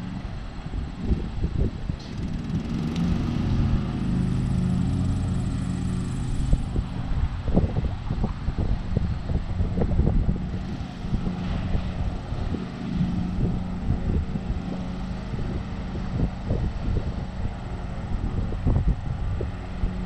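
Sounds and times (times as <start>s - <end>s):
lawn mower engine running: 0.0s - 20.0s.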